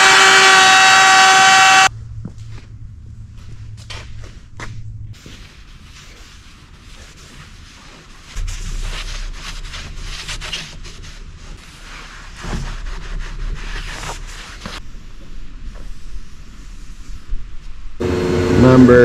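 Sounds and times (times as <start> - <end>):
low rumble: 1.9 - 5.8
cloth wiping hard surface: 5.2 - 17.8.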